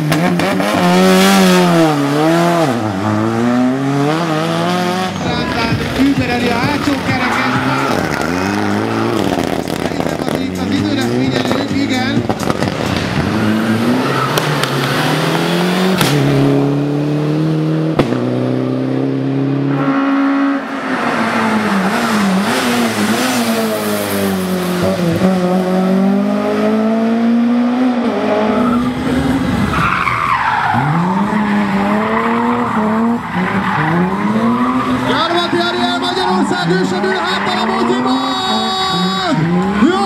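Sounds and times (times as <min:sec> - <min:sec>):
rally car engines revving: 0:00.0 - 0:40.0
tyre squeal: 0:06.7 - 0:10.3
sharp crack: 0:14.3 - 0:16.4.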